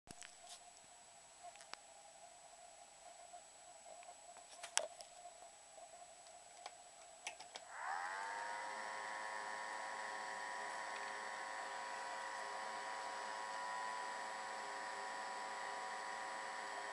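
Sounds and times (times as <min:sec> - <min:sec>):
electric fan motor whining: 0:07.6 - 0:16.9.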